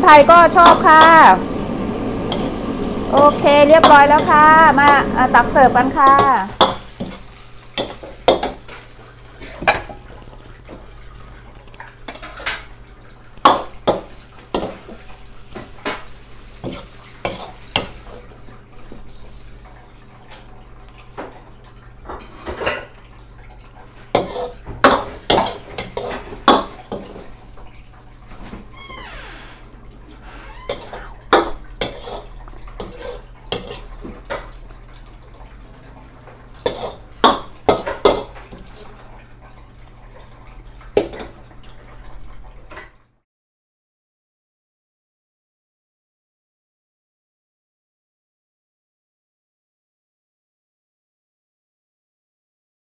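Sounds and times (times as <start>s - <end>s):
wok sizzling: 0.0s - 21.2s, 24.0s - 38.9s.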